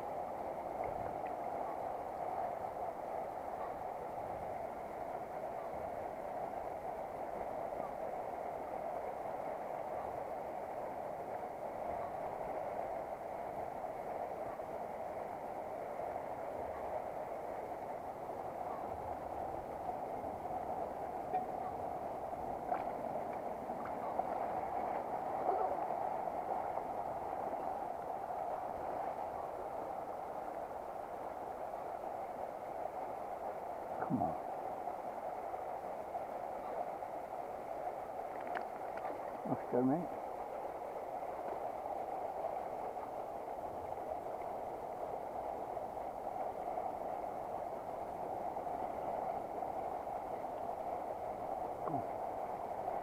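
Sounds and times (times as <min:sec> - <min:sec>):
faint clicks: 0:38.3 - 0:39.4.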